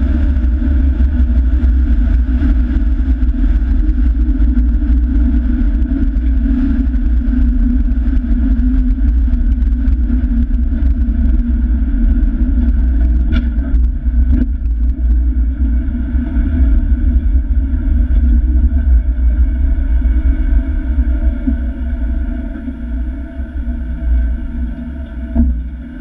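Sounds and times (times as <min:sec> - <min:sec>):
vehicle engine and road rumble: 0:00.0 - 0:26.0.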